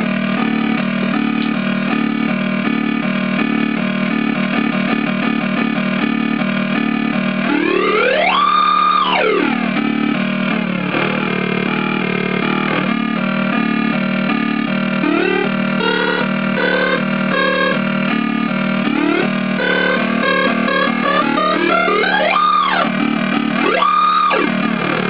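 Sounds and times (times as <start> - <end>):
synthesizer stepping electronic notes: 0.0 - 25.0
synthesizer tone sweeping in pitch: 6.0 - 25.0.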